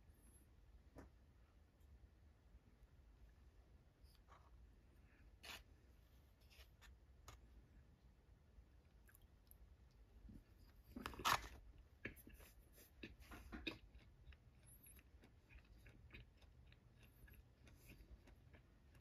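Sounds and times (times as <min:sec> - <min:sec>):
person chewing with wet clicks: 0:08.8 - 0:10.1, 0:10.9 - 0:19.0.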